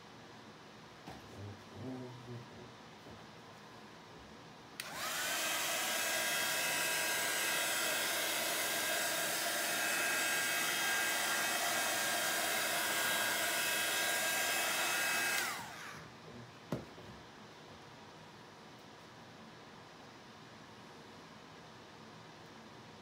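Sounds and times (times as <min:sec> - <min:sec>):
hot-air blower fan whine: 0:00.7 - 0:17.2.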